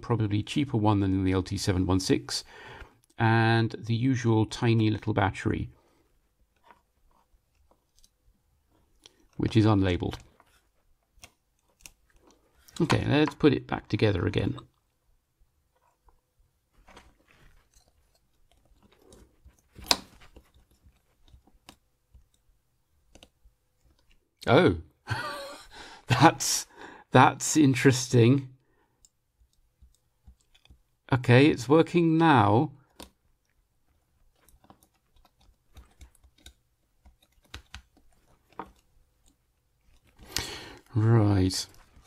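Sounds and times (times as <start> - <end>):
plastic rustles and small clicks: 15.6 - 24.4, 32.8 - 41.0, 41.6 - 42.0.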